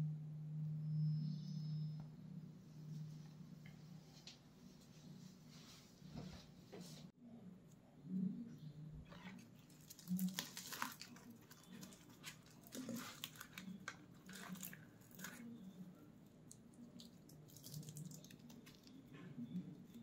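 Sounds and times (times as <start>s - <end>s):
flatbread tearing and crackling: 9.1s - 20.0s.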